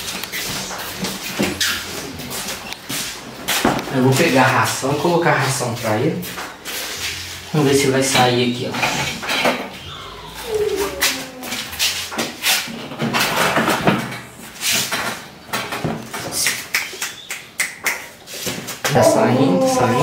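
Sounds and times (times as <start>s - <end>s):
short falling whine: 9.8s - 11.6s.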